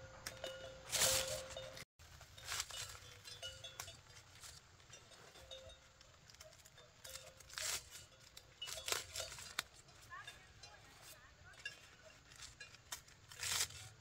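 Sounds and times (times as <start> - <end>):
corn husks rustling and crackling: 0.0 - 14.0
husk tearing rip: 13.2 - 14.0.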